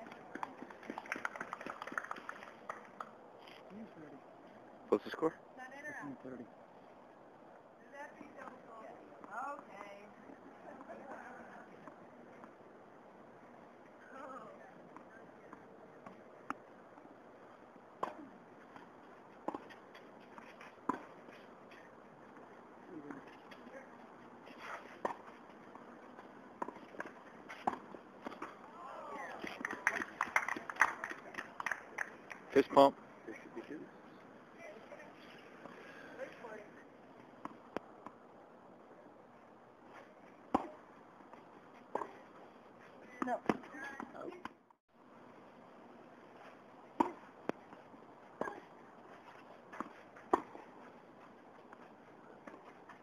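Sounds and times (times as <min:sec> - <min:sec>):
tennis ball bouncing on court: 0:18.0 - 0:21.2, 0:24.9 - 0:31.0, 0:40.5 - 0:42.2, 0:43.1 - 0:44.6, 0:46.9 - 0:47.8, 0:49.7 - 0:50.7
tennis ball struck by rackets: 0:24.7 - 0:25.8, 0:26.6 - 0:28.6, 0:40.5 - 0:40.8, 0:46.9 - 0:47.8, 0:49.7 - 0:50.7
racket striking ball: 0:40.5 - 0:40.8, 0:49.7 - 0:50.6.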